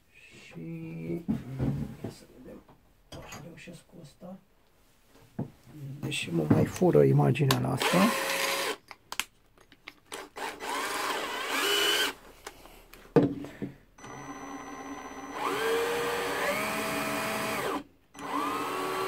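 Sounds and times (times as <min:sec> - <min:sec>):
cordless drill motor whine: 0:07.8 - 0:08.8, 0:10.1 - 0:12.2, 0:14.0 - 0:19.0.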